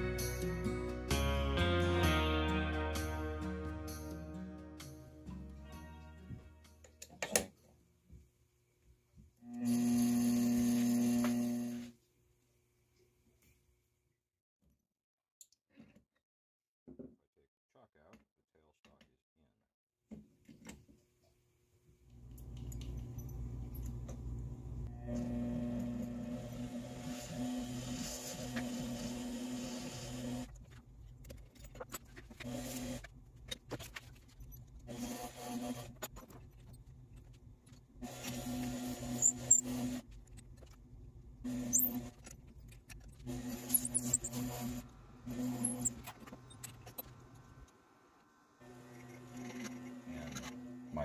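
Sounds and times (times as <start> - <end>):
drill bit boring wood: 9.5 - 11.9, 24.9 - 30.5, 34.9 - 36.0, 38.0 - 40.0, 43.3 - 46.4.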